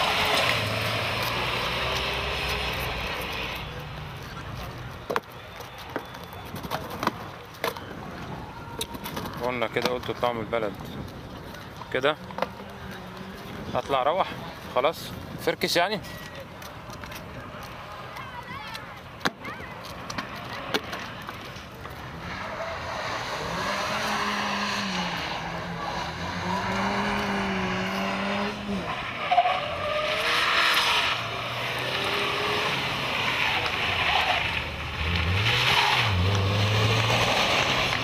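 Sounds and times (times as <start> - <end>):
car engine at high revs: 0.0 - 3.7, 22.2 - 38.0
tyres squealing: 22.1 - 38.0.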